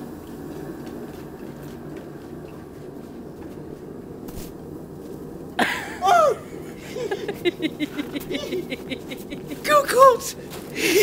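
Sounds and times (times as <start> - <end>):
footsteps in snow: 0.0 - 5.2, 10.4 - 10.9
low background rumble: 0.0 - 11.0.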